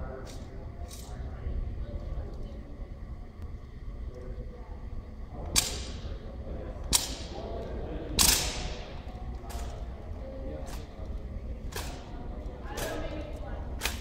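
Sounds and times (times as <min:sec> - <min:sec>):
hands slapping rifles: 0:13.8 - 0:14.0.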